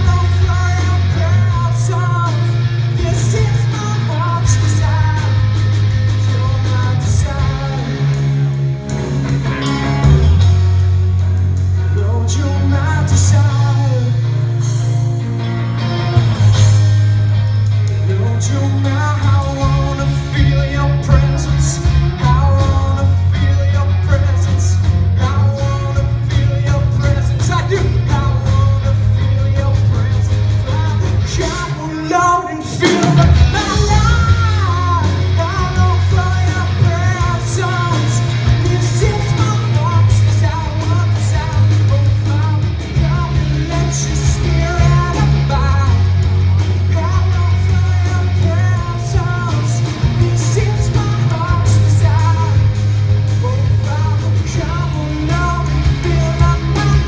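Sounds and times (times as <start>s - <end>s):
man singing: 0.0s - 8.5s, 11.8s - 15.1s, 17.9s - 57.0s
bass guitar: 0.0s - 57.0s
drums: 0.0s - 57.0s
electric guitars: 0.0s - 57.0s.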